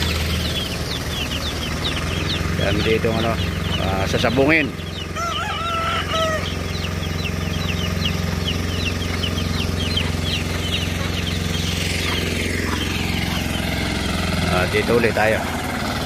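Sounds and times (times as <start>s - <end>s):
high bird chirps: 0.0s - 14.8s
tractor engine running: 0.0s - 16.0s.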